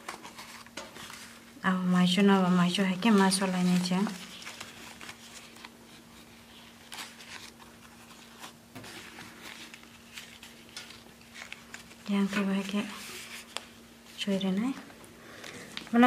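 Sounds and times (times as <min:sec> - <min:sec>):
faint steady hum: 0:00.0 - 0:16.0
leaf rustling and crinkling: 0:02.1 - 0:14.3.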